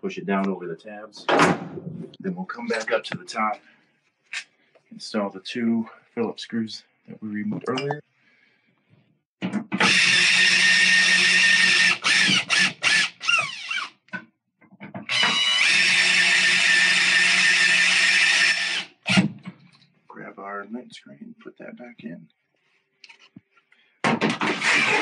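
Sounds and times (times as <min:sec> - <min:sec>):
cordless drill driving screws: 0:09.8 - 0:13.9, 0:15.1 - 0:19.3, 0:24.3 - 0:25.0.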